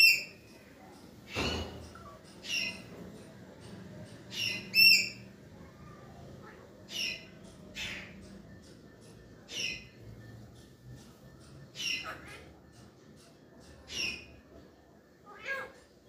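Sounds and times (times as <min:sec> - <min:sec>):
parakeets calling: 0:00.0 - 0:14.5.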